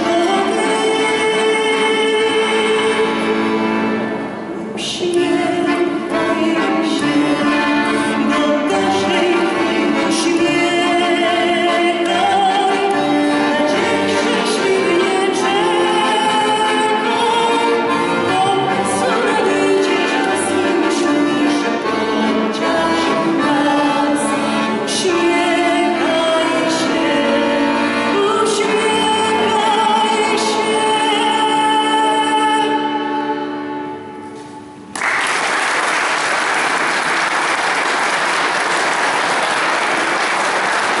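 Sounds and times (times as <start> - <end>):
piano accordion: 0.0 - 34.9
audience applauding: 34.9 - 41.0.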